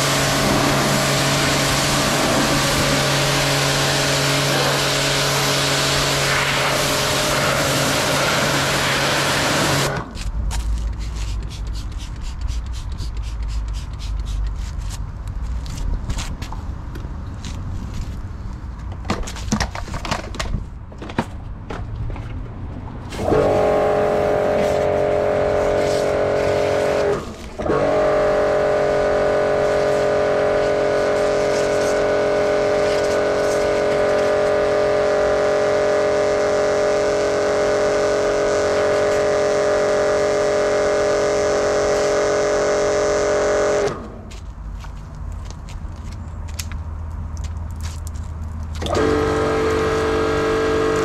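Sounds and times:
pressure washer motor humming: 0.0s - 10.1s, 23.2s - 44.2s, 48.8s - 51.0s
scattered clicks and crackles: 44.3s - 49.0s.

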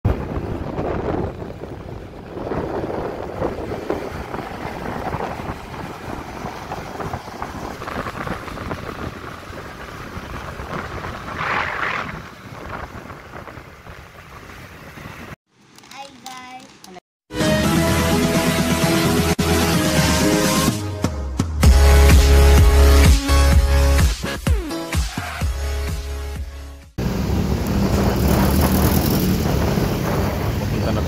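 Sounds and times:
motorcycle road noise: 0.0s - 17.0s, 27.0s - 31.0s
wind buffeting microphone: 0.1s - 15.4s, 27.0s - 31.0s.

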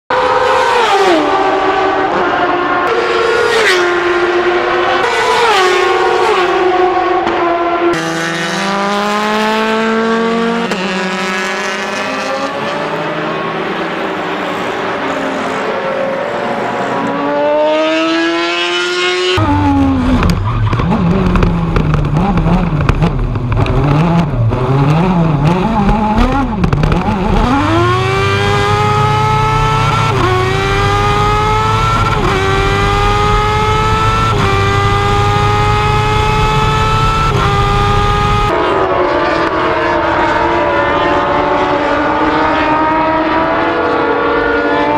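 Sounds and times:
race car engines at high revs: 0.1s - 44.9s
engine accelerating through gears: 17.2s - 38.6s.

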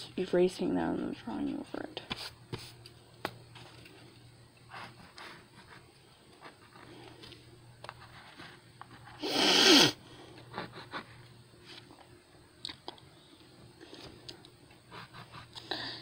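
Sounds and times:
pencil and eraser scraping paper: 14.9s - 15.5s.

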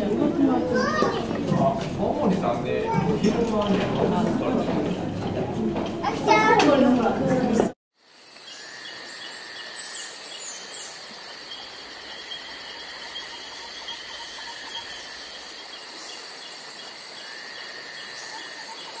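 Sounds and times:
insect buzz: 8.0s - 19.0s
insect chirps: 8.0s - 19.0s.

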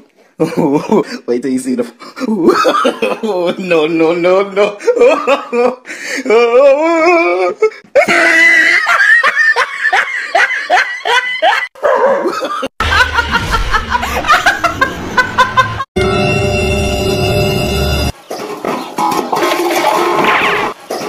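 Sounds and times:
person laughing hard: 2.2s - 3.6s, 4.6s - 15.9s
music: 16.0s - 18.1s.

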